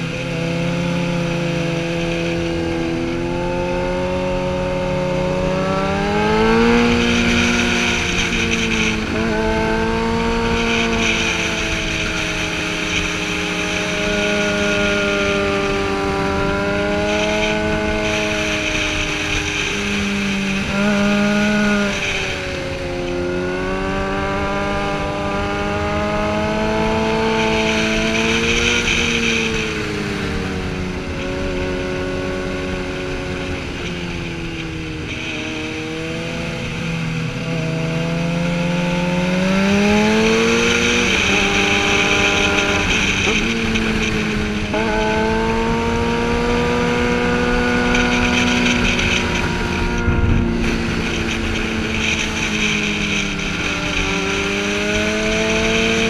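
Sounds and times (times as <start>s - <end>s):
motorcycle engine revving: 0.0s - 56.0s
wind rushing past helmet: 39.7s - 56.0s.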